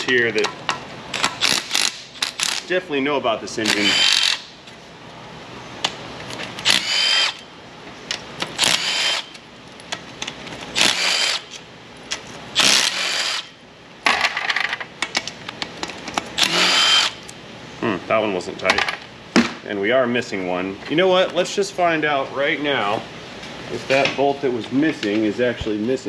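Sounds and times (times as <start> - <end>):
power tool whining: 3.7 - 4.5, 6.6 - 7.5, 8.6 - 9.4, 10.7 - 11.6, 12.6 - 13.5, 16.4 - 17.2.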